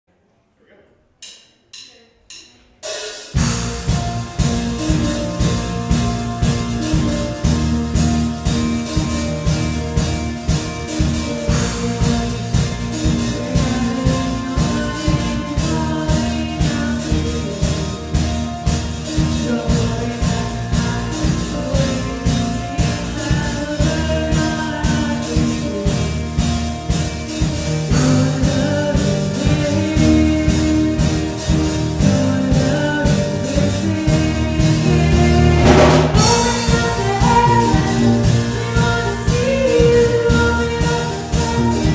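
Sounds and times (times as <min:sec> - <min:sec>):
live band playing: 0:02.8 - 0:41.9
person singing: 0:10.8 - 0:41.9.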